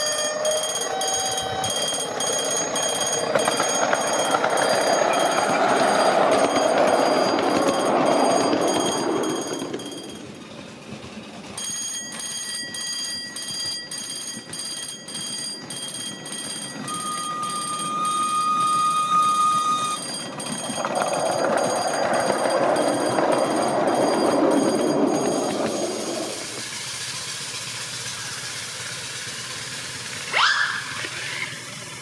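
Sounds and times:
locomotive whistle: 0:00.0 - 0:07.9, 0:16.7 - 0:20.2, 0:30.3 - 0:31.6
train wheels on rails: 0:00.0 - 0:32.0.

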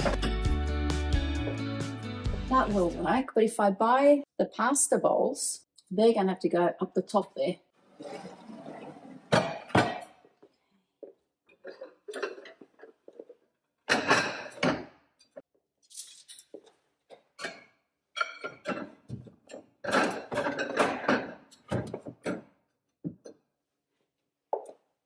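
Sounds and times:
ceramic plates clattering: 0:08.0 - 0:10.2, 0:11.6 - 0:13.3, 0:13.9 - 0:15.4, 0:17.4 - 0:22.4.

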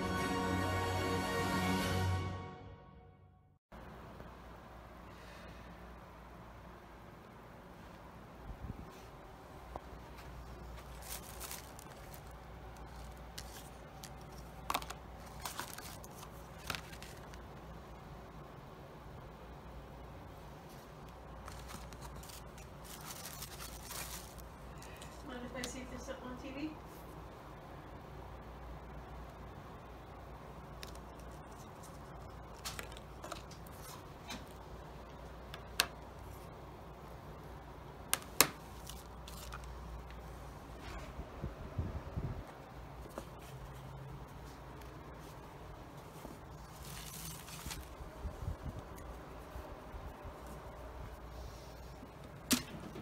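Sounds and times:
paper cards rustling: 0:10.2 - 0:17.6, 0:21.1 - 0:25.1, 0:30.8 - 0:34.6, 0:38.2 - 0:40.2, 0:46.1 - 0:48.0.

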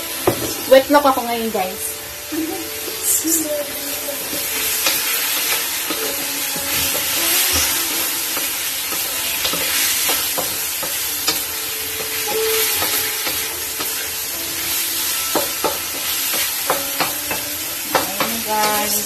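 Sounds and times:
chicken sizzling in a wok: 0:00.0 - 0:19.0
spatula scraping wok: 0:02.8 - 0:19.0
spatula knocking against wok: 0:15.2 - 0:19.0.

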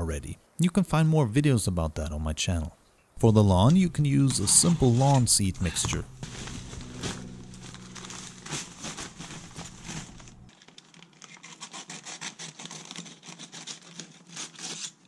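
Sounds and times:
paper crinkling and rustling: 0:03.7 - 0:15.0
knife slicing paper: 0:04.1 - 0:10.5, 0:11.2 - 0:15.0.

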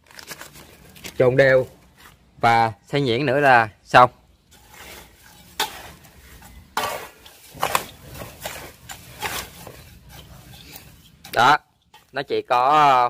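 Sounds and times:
scoop scraping metal basin: 0:04.4 - 0:13.0
scoop stirring dry mix: 0:04.4 - 0:13.0.

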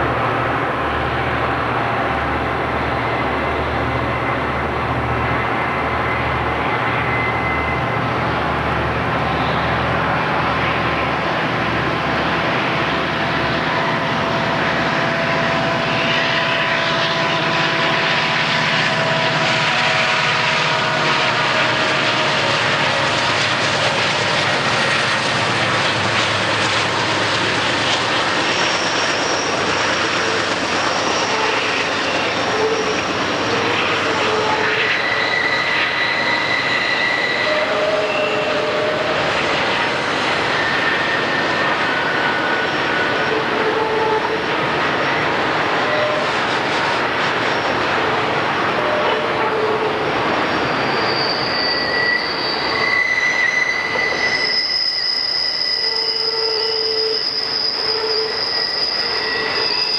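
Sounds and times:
diesel locomotive engine rumble: 0:00.0 - 0:59.9
train wheels rolling: 0:00.0 - 0:59.9
high-pitched flange squeal: 0:05.3 - 0:08.0, 0:12.4 - 0:45.2, 0:45.8 - 0:46.9, 0:48.8 - 0:59.9.

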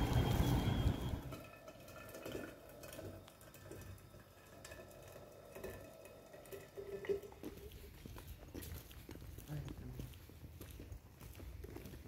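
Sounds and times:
water trickling into a flask: 0:01.4 - 0:08.0.

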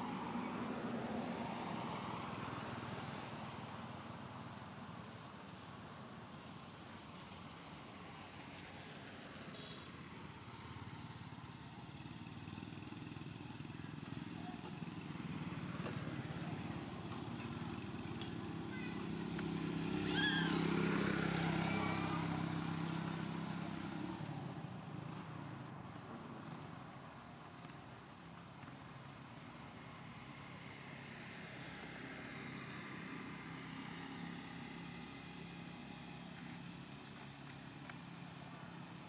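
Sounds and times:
motor engine passing: 0:10.4 - 0:26.8.

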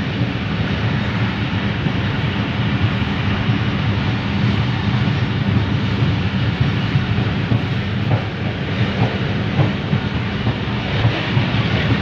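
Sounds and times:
hiss of moving air: 0:00.0 - 0:12.0
train wheels rumbling on rails: 0:00.0 - 0:12.0.

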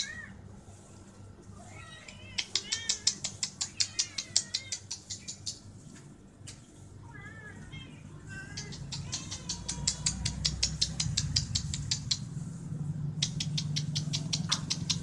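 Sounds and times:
small birds chirping: 0:02.4 - 0:06.7, 0:08.3 - 0:12.4, 0:13.1 - 0:15.0.

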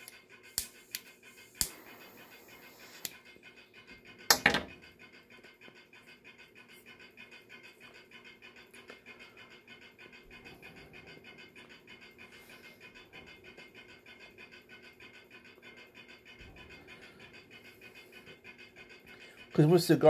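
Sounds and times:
lighter clicking: 0:00.6 - 0:01.8
lighter rasping burst: 0:00.6 - 0:03.2.

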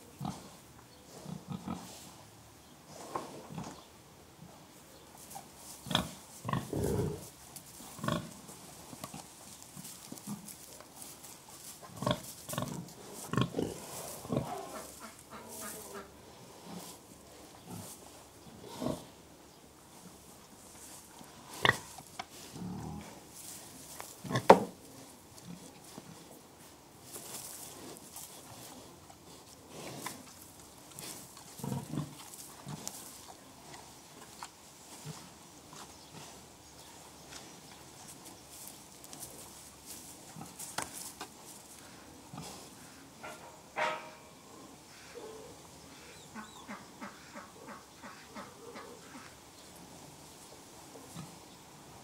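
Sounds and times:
pigs grunting: 0:00.2 - 0:02.0, 0:05.8 - 0:07.3, 0:11.9 - 0:17.0, 0:21.4 - 0:23.3, 0:31.0 - 0:32.9.

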